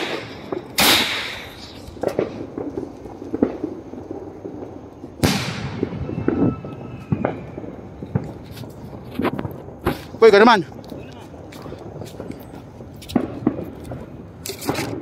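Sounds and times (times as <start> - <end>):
firework launch bang: 0.0 - 3.8, 4.4 - 10.2
firework shell bursting: 0.0 - 4.5, 13.0 - 15.0.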